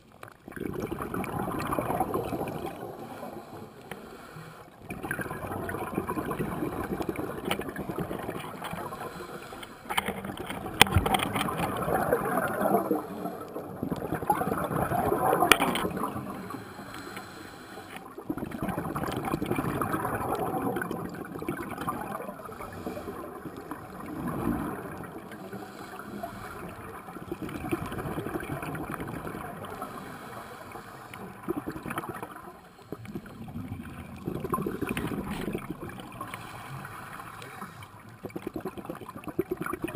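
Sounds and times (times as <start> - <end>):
bubbles gurgling: 0.4 - 3.7, 4.8 - 16.8, 18.0 - 30.0, 31.2 - 39.9
diver breathing through regulator: 2.4 - 4.9, 8.2 - 10.5, 15.4 - 18.1, 22.4 - 24.3, 25.0 - 27.0, 29.6 - 31.8.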